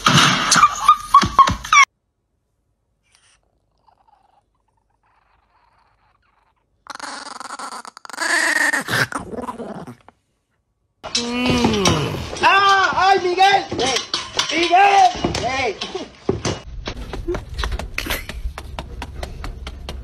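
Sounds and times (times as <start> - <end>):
small dog growling: 3.1 - 10.2.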